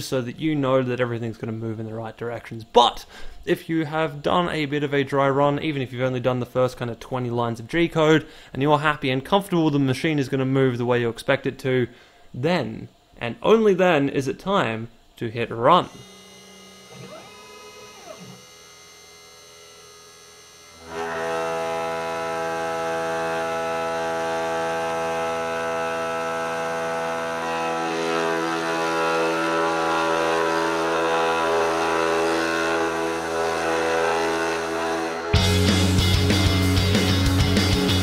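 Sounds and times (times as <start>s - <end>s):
faint machine hum: 0.0s - 35.4s
router spindle motor whine: 15.6s - 36.8s
short sliding machine tone: 15.9s - 19.0s.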